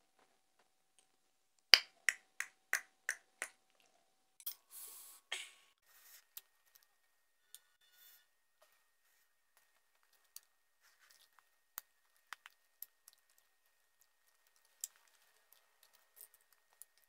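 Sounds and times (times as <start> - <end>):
soft eating sounds: 9.0 - 17.0.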